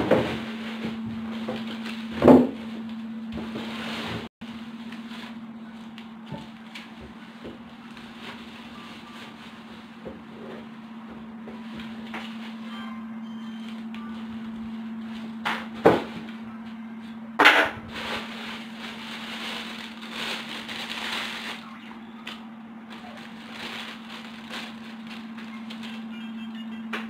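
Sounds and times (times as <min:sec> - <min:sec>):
steady low hum: 0:00.0 - 0:27.0
plastic wrapping crinkling: 0:17.9 - 0:26.4.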